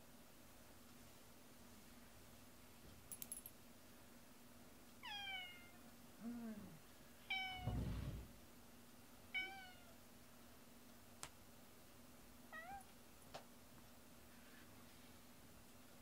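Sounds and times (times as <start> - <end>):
cat meowing: 5.0 - 5.8, 9.3 - 10.0, 12.5 - 12.9
low muffled bump: 7.6 - 8.4.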